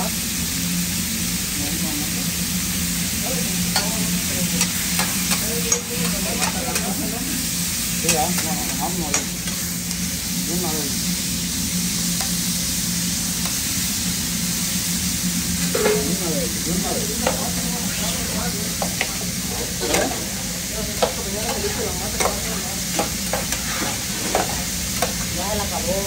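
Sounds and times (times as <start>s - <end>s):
steak sizzling on a griddle: 0.0s - 26.0s
metal spatula scraping and tapping: 17.2s - 17.5s, 21.0s - 25.3s.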